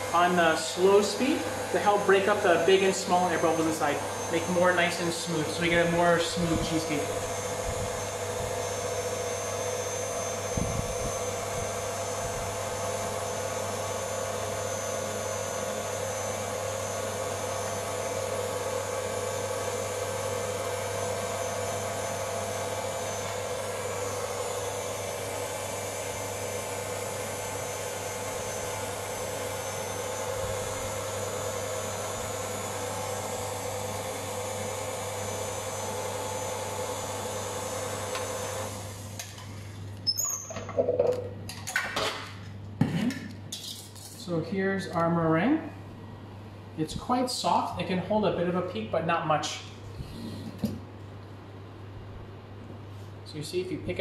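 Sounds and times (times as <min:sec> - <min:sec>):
stand mixer whisking in steel bowl: 0:00.0 - 0:39.2.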